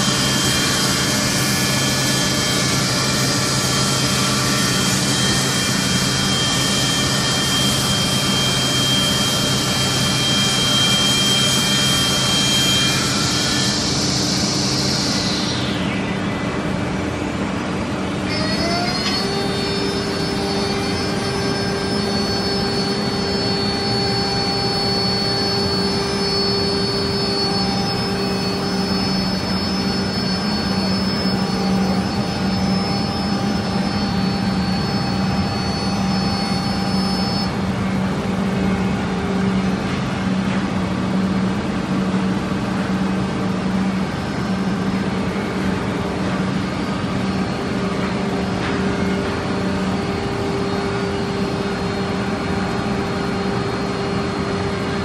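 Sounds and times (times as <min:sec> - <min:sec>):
low machine hum: 0:00.0 - 0:55.0
router spindle whine: 0:00.0 - 0:55.0.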